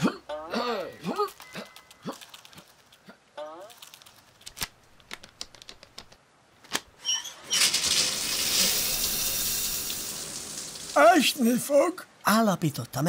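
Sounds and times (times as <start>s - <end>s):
cartoon shower spraying water: 7.4s - 11.6s.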